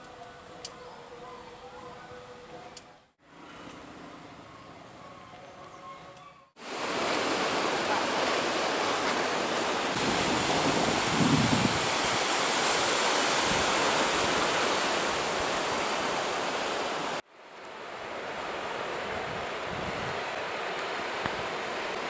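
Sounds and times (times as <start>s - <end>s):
surf washing among rocks: 6.6s - 22.0s
wind on microphone: 9.9s - 15.7s, 19.0s - 20.4s.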